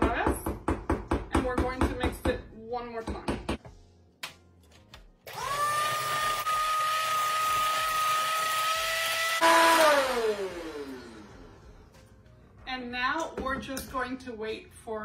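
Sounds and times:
electric hand mixer whine: 5.3s - 11.8s.

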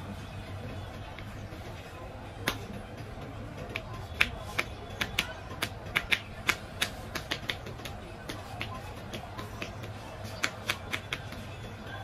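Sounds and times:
hands slapping on a head: 3.7s - 11.3s.

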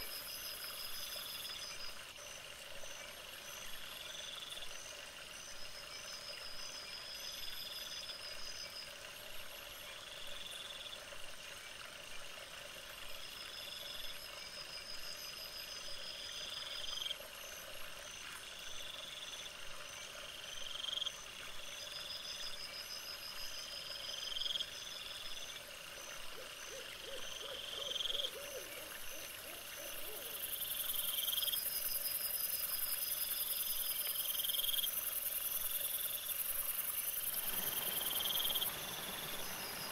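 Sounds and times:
insects chirping: 0.0s - 11.0s, 13.1s - 39.9s
rising high-pitched insect calls: 24.1s - 39.9s.

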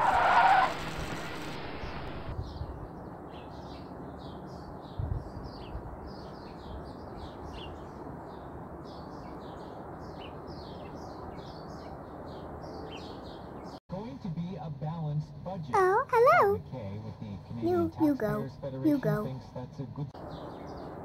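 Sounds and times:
small birds chirping: 1.2s - 13.8s, 20.2s - 21.0s.

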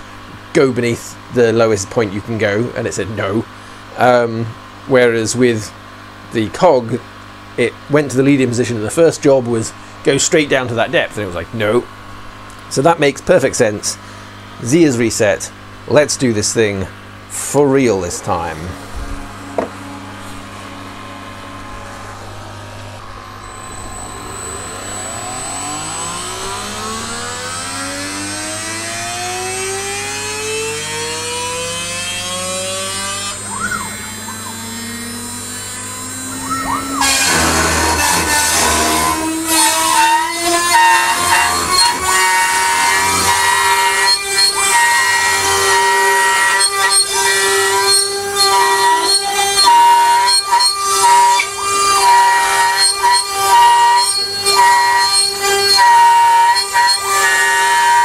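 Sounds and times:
stepper motors whining: 16.2s - 58.0s
router spindle cutting plywood: 17.3s - 58.0s.

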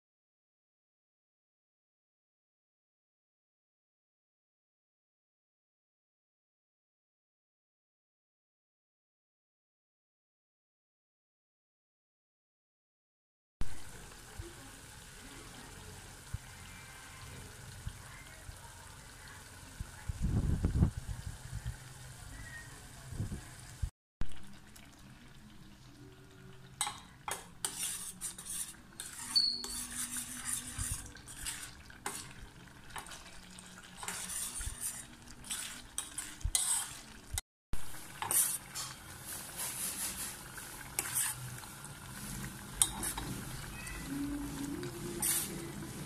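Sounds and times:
spoon scraping a saucepan: 26.8s - 37.4s, 38.0s - 46.0s
paste sizzling: 26.9s - 46.0s.

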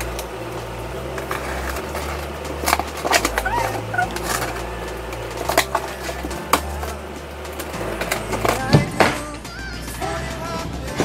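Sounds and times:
box cutter scraping: 1.1s - 9.3s
packing tape ripping: 1.2s - 7.0s
short squeaks: 3.0s - 4.7s.

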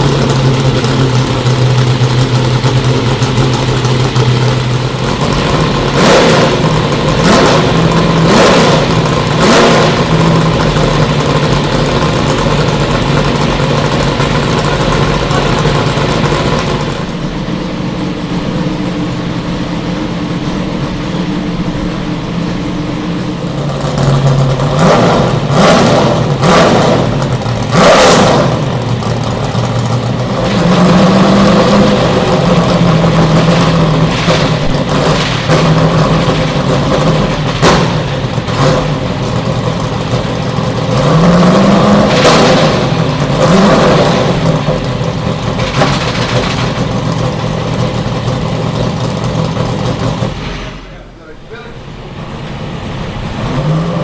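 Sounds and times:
car engine idling with throttle blips: 0.0s - 54.0s.

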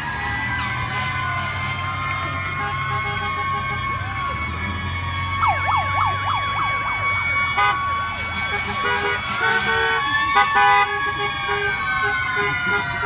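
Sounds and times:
siren in fast yelp: 0.4s - 13.0s
car horn honks: 7.6s - 13.0s.

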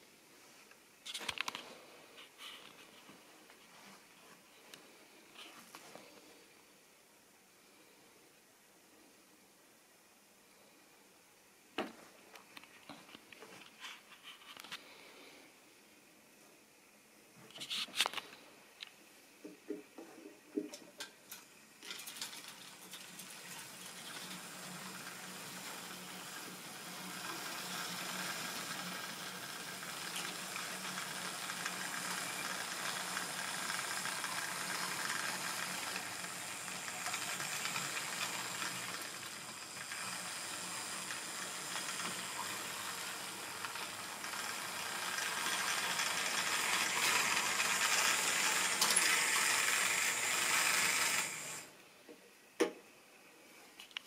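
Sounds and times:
electric motor hum: 23.5s - 51.7s
wheels clicking over rail joints: 26.9s - 51.4s.

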